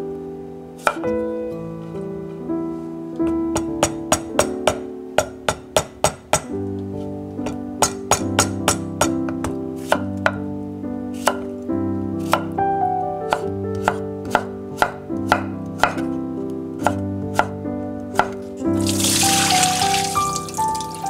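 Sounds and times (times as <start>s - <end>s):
background music: 0.0s - 21.0s
knife chopping on wooden board: 0.8s - 1.1s, 3.2s - 6.5s, 7.5s - 10.4s, 11.2s - 11.5s, 12.2s - 12.6s, 13.3s - 16.2s, 16.8s - 17.6s, 18.2s - 18.4s.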